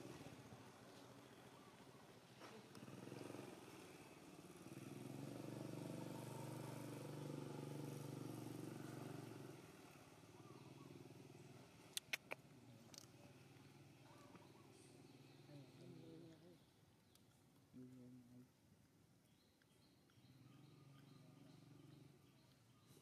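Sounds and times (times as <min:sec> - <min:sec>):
passing motor vehicle engine hum: 0:00.0 - 0:16.8, 0:20.2 - 0:23.0
sharp clicks: 0:11.9 - 0:13.1.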